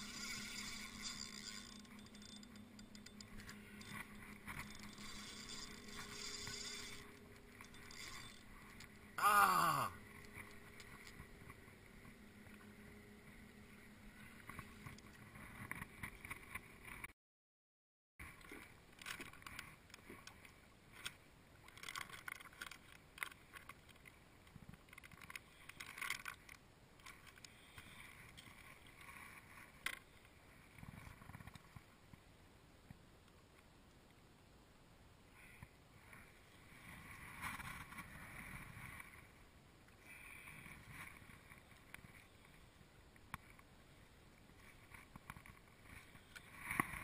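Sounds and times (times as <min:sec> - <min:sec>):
fishing reel whir: 0:00.0 - 0:17.0.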